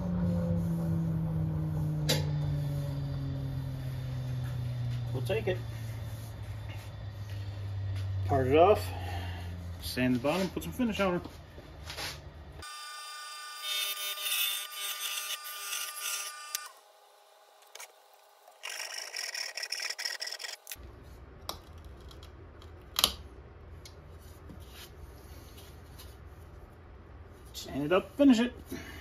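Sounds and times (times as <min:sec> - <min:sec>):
wood lathe cutting: 0:12.6 - 0:16.8, 0:18.5 - 0:20.8
handsaw strokes: 0:18.5 - 0:20.8.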